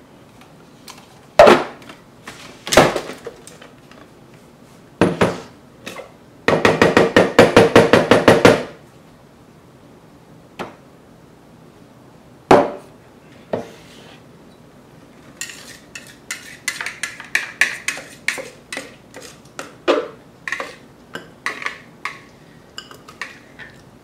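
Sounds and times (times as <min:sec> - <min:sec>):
spatula scraping plastic bowl: 0:15.4 - 0:19.6.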